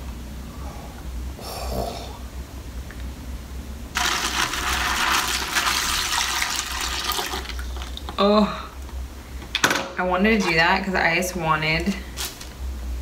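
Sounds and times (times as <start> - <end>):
liquid pouring and splashing: 4.0 - 8.1.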